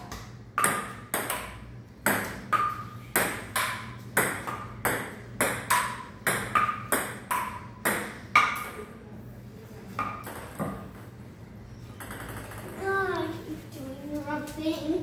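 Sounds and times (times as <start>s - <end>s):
ping-pong ball bouncing and struck: 0.0s - 9.0s, 9.9s - 11.2s, 11.9s - 13.0s.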